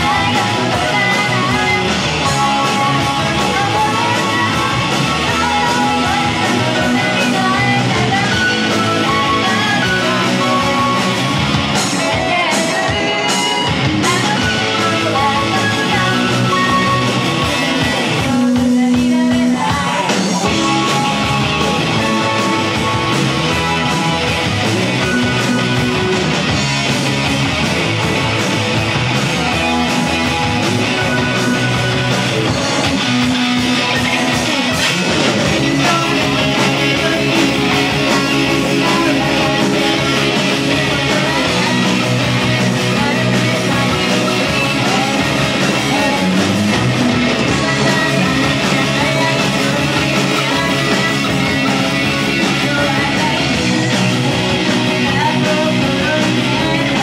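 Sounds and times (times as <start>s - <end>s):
woman singing: 0.0s - 11.2s, 11.8s - 22.8s, 35.6s - 57.0s
rock band playing live: 0.0s - 57.0s.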